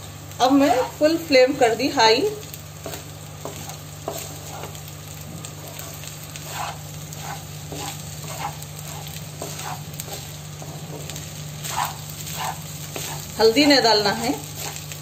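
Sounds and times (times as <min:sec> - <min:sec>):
rice sizzling in a pan: 0:00.0 - 0:15.0
steady low hum: 0:00.0 - 0:15.0
spatula scraping a pan: 0:00.5 - 0:01.1, 0:02.8 - 0:04.9, 0:05.6 - 0:15.0.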